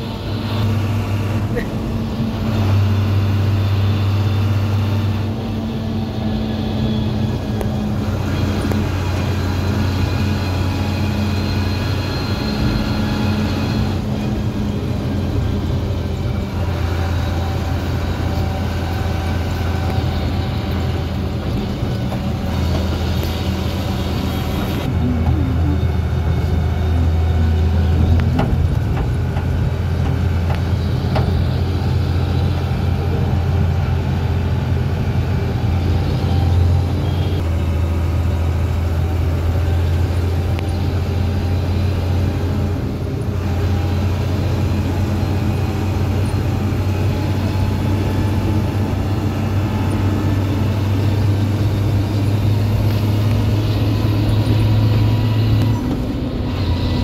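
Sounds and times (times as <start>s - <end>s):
tyre road noise: 0.0s - 57.0s
vehicle engine drone: 0.0s - 57.0s.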